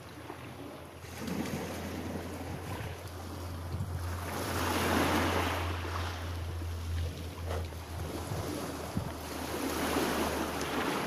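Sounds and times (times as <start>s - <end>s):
waves washing over pebbles: 0.0s - 11.0s
steady low rumble: 0.2s - 11.0s.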